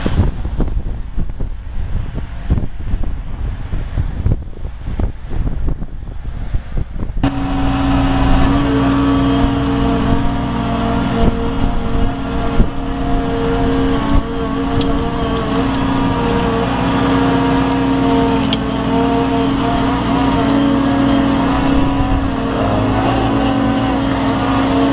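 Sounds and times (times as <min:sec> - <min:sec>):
excavator pump and engine hum: 0:00.0 - 0:24.9
wind noise: 0:00.0 - 0:24.9
sharp clicks: 0:13.6 - 0:16.5, 0:17.6 - 0:18.7.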